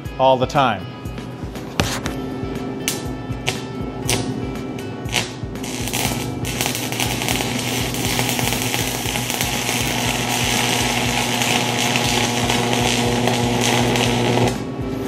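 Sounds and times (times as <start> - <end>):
welding arc crackling and sizzling: 2.9 - 4.4, 5.0 - 15.0.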